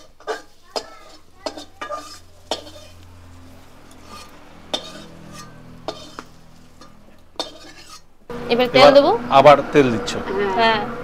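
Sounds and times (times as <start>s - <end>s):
metal spatula scraping metal pan: 0.0s - 8.2s.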